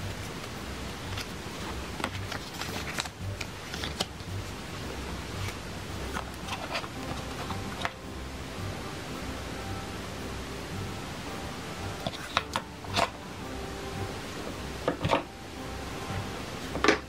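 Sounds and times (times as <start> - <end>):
paper packaging crinkling: 2.0 - 4.2.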